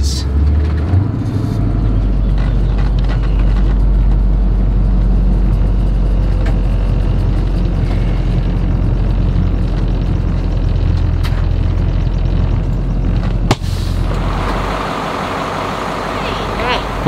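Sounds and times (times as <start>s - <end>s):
bus engine rumbling: 0.0s - 17.0s.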